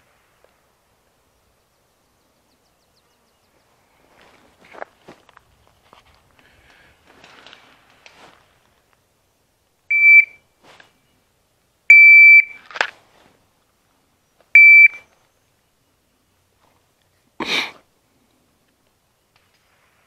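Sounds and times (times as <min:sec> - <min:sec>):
shot timer beeps: 0:09.9 - 0:10.4, 0:11.9 - 0:12.6, 0:14.6 - 0:15.0.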